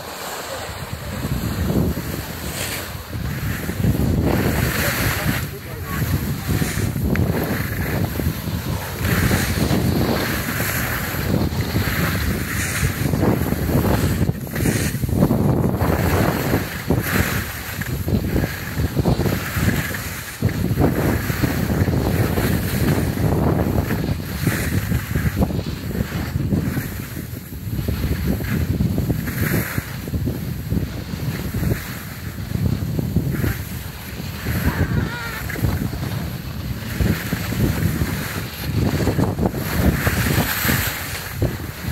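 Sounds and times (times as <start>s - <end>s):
skis hissing over packed snow: 0.0s - 41.9s
wind buffeting microphone: 0.0s - 41.9s.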